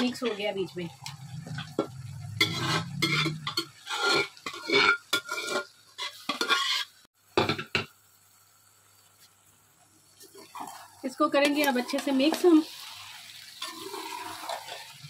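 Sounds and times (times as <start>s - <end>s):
metal spatula scraping a pot: 1.4s - 7.1s, 10.2s - 15.0s.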